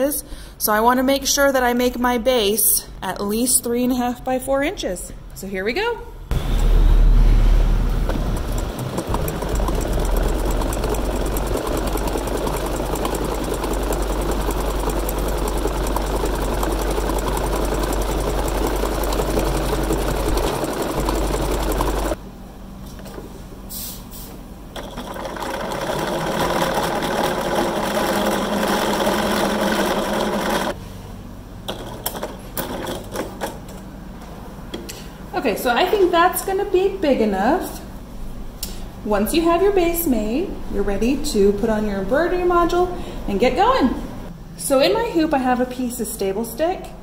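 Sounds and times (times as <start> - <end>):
sewing machine running: 7.8 - 22.2, 24.7 - 30.8.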